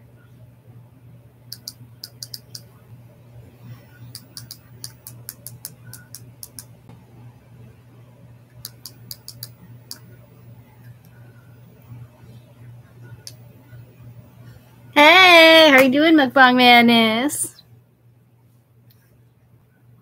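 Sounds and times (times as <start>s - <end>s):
low electrical hum: 0.0s - 20.0s
laptop keyboard typing: 1.5s - 2.7s, 4.1s - 6.7s, 8.7s - 10.1s.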